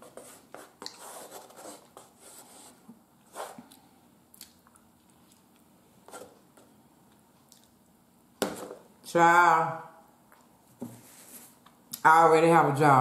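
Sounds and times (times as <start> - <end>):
person chewing food: 3.6 - 5.8, 7.0 - 8.0
soft mouth clicks: 4.4 - 5.4.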